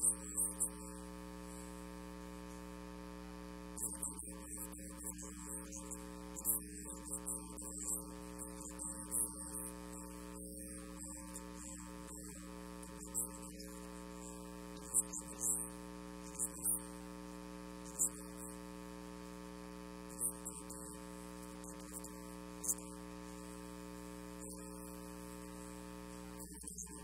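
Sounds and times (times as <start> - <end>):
electrical mains hum: 0.0 - 27.0.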